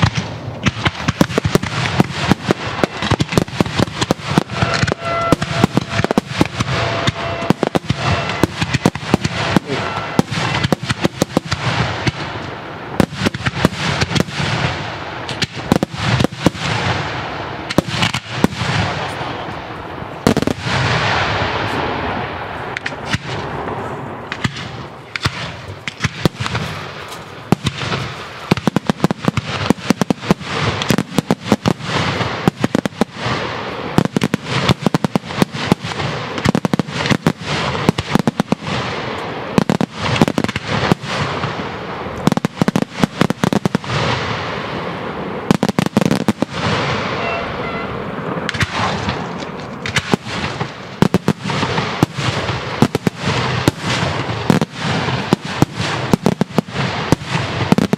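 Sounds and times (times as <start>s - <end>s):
fireworks shells bursting: 0.0s - 14.6s.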